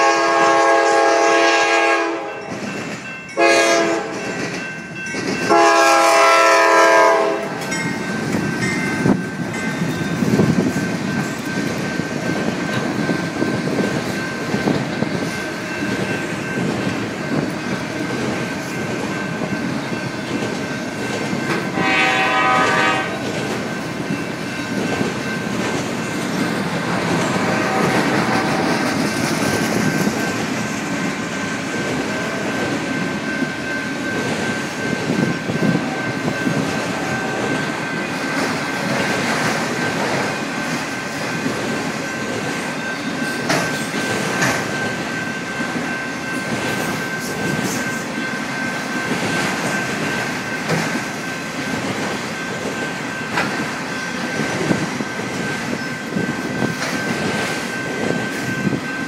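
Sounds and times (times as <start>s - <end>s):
locomotive air horn blasts: 0.0s - 2.3s, 3.4s - 4.2s, 5.5s - 7.6s, 21.7s - 23.2s, 27.4s - 28.7s
train rumbling past: 0.0s - 59.0s
wheels clacking on rails: 0.0s - 59.0s.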